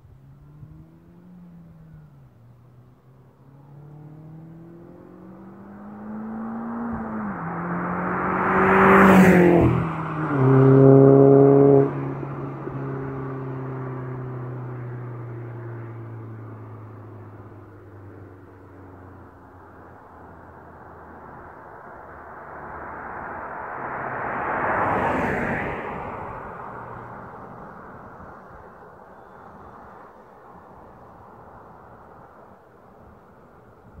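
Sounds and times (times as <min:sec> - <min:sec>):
car accelerating hard past: 0:03.4 - 0:18.0, 0:20.3 - 0:30.0.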